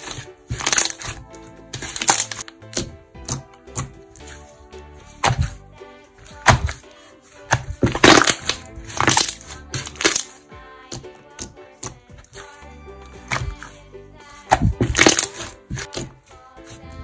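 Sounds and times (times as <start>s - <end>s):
slime popping and crackling: 0.0s - 3.9s, 7.6s - 10.3s, 14.5s - 16.0s
background music: 0.0s - 17.0s.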